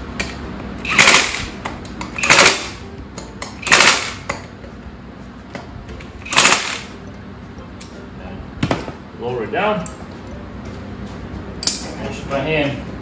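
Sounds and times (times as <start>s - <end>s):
power tool bursts: 0.8s - 1.6s, 2.2s - 2.8s, 3.6s - 4.3s, 6.2s - 6.9s.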